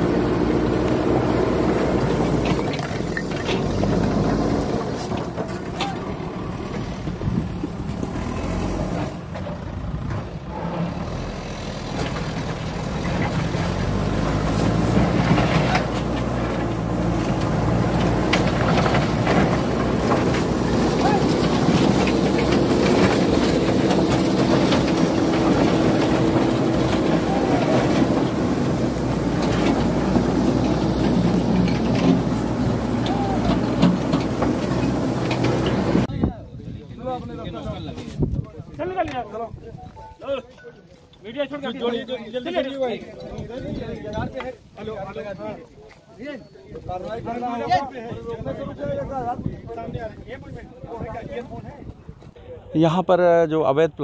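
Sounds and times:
diesel engine running under load: 0.0s - 36.2s.

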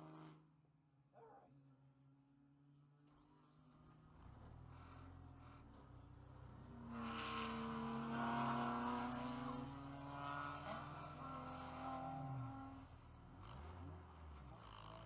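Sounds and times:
race car engine: 3.3s - 15.0s
race cars passing: 6.6s - 15.0s.

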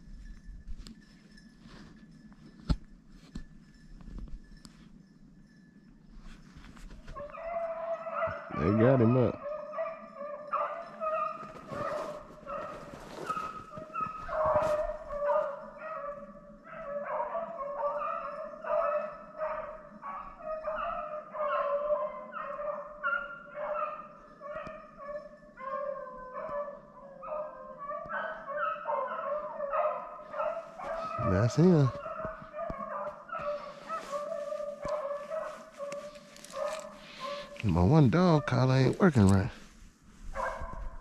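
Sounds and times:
hounds baying: 6.2s - 41.0s
short rustling: 11.4s - 15.2s, 33.4s - 37.9s.

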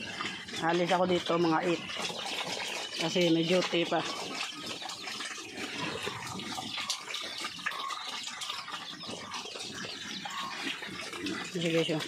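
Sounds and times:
water running and splashing: 0.0s - 12.0s.

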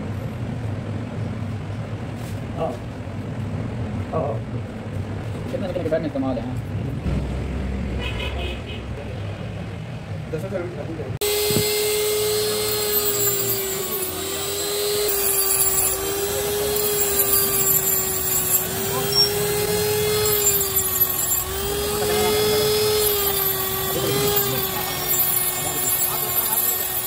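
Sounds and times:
electric grinder whining: 11.2s - 27.0s
grinder scraping steel: 11.2s - 27.0s.

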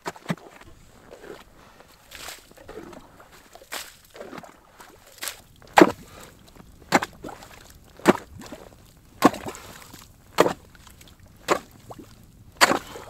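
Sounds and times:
ice being chopped: 5.8s - 6.0s, 10.4s - 10.6s, 11.5s - 11.7s, 12.6s - 13.0s.

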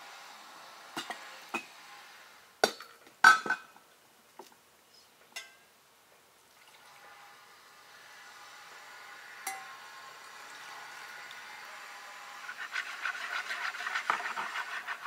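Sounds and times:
pots and glass clinking: 3.2s - 3.7s.

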